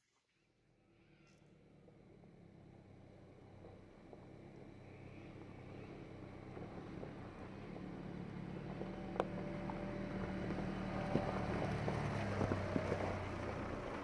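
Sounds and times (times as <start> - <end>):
off-road vehicle engine at low revs: 0.6 - 14.0
rocks crunching under tyres: 6.5 - 14.0.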